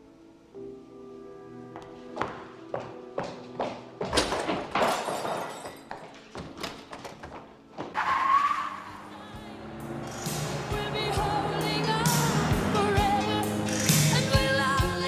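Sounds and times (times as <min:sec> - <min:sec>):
film soundtrack music: 0:06.2 - 0:15.0
pop song: 0:08.8 - 0:15.0.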